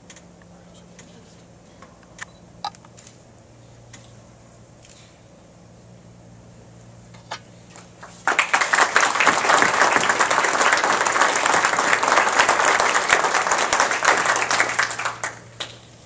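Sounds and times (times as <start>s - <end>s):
audience applause: 8.0s - 15.8s.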